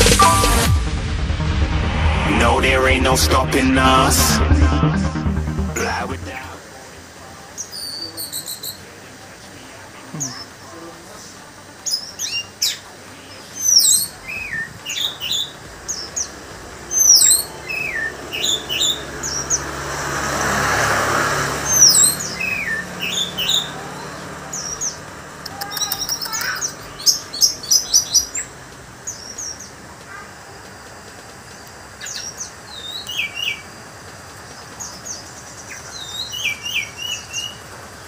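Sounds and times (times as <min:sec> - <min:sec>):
background noise: 0:00.0 - 0:38.0
thrush singing whistled notes: 0:13.6 - 0:19.7, 0:21.6 - 0:23.8.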